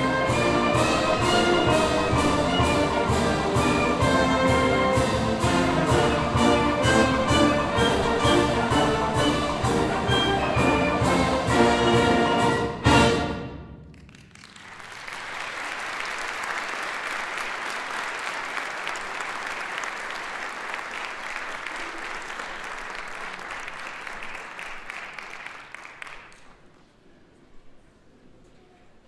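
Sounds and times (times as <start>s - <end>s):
audience applauding: 13.9s - 26.8s.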